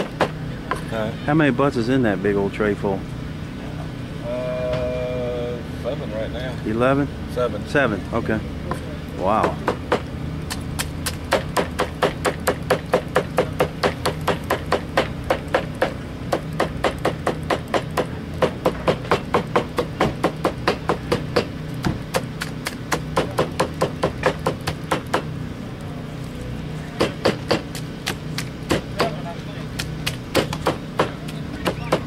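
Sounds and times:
blade chopping on cutting board: 9.4 - 25.3, 27.0 - 29.2, 29.8 - 32.0.

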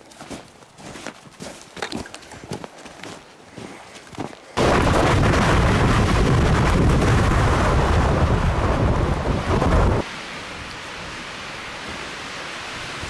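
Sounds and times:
wind buffeting microphone: 4.6 - 10.0
soft wind hiss: 10.0 - 13.0.

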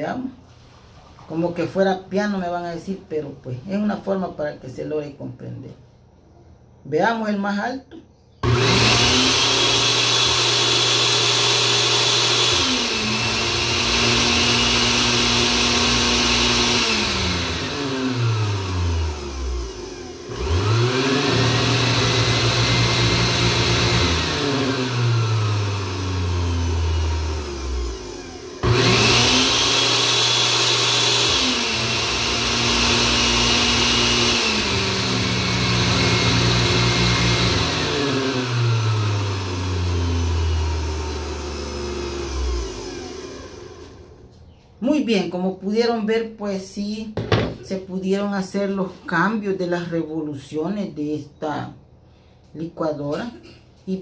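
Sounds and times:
blender motor whining: 8.4 - 44.3.

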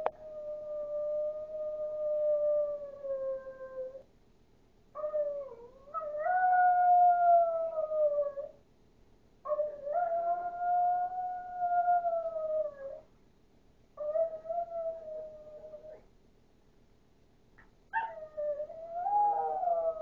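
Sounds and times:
small dog howling: 17.9 - 20.0.

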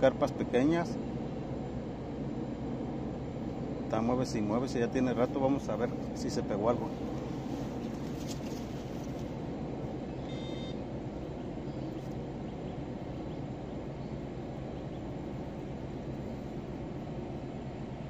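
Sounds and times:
low outdoor rumble: 0.0 - 18.0
short beep: 10.2 - 10.8.

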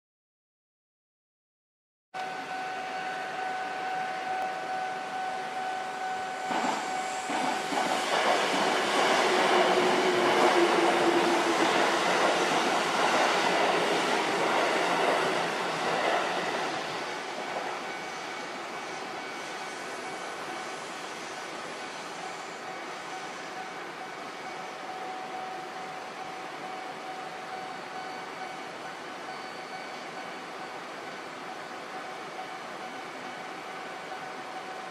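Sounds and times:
electric train passing: 2.2 - 34.9
level-crossing warning bell: 2.2 - 34.9.

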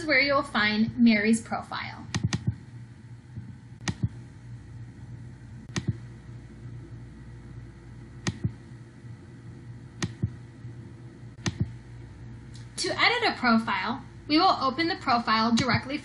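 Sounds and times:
low steady hum: 0.0 - 16.0
mouse buttons clicking: 2.1 - 2.6, 3.8 - 4.2, 5.7 - 6.0, 8.2 - 8.6, 10.0 - 10.4, 11.4 - 11.8.

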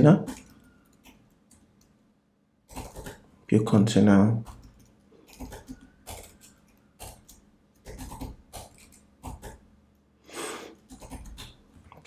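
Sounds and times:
keyboard typing: 0.0 - 2.0, 2.6 - 3.3, 4.4 - 9.7, 10.8 - 12.0
breath near microphone: 10.2 - 10.9.

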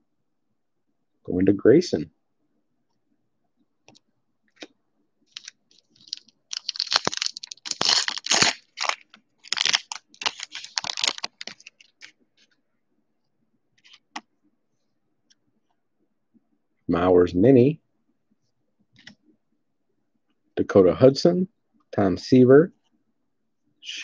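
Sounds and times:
plastic wrapper tearing and crinkling: 5.3 - 12.2.

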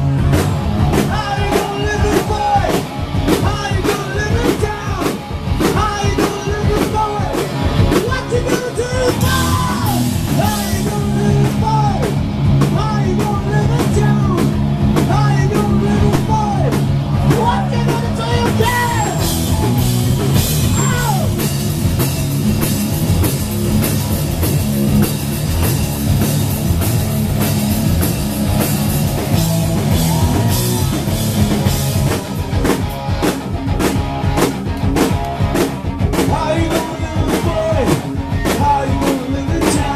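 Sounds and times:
drum kit: 0.0 - 39.9
electric guitar: 0.0 - 39.9
man singing: 1.0 - 19.3, 36.2 - 39.9.

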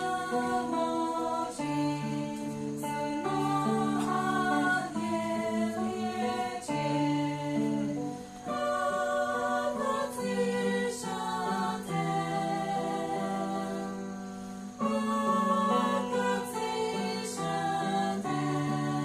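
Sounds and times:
group singing hymn in harmony: 0.0 - 19.0
guitar accompaniment: 0.0 - 19.0.

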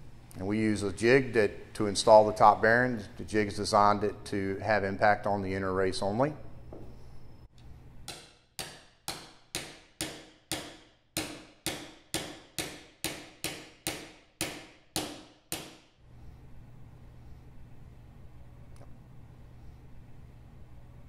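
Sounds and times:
mallet striking metal jig: 8.0 - 15.9.

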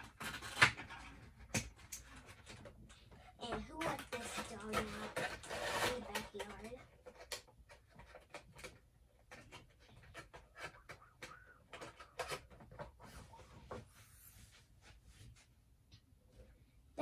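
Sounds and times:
plastic box knocking and scraping: 0.0 - 13.9.

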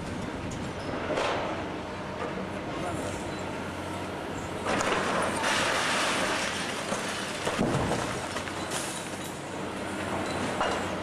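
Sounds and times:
falling rubble crackling: 4.7 - 9.2.

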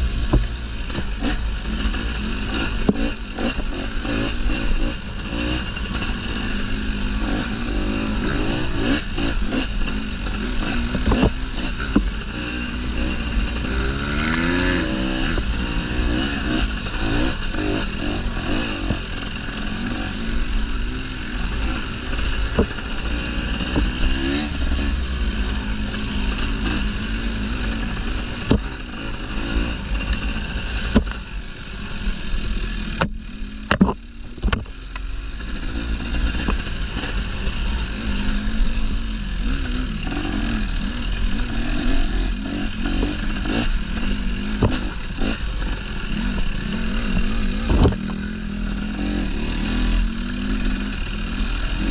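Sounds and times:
dirt bike engine revving: 0.0 - 51.9
bike knocking and clattering: 33.0 - 35.1.

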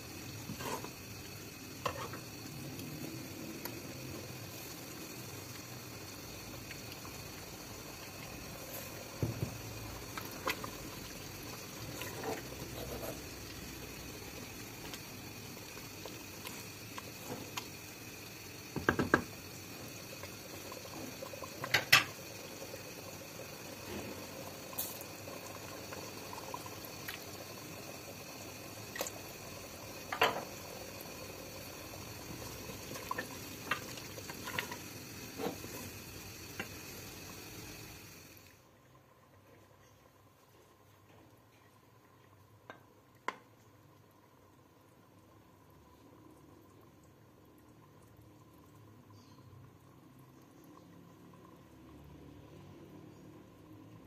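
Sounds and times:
broth boiling in pot: 0.0 - 54.0.

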